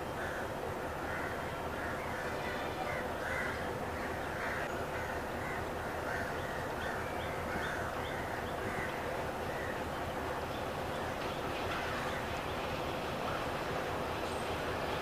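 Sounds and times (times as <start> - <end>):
crows cawing: 0.2 - 9.8.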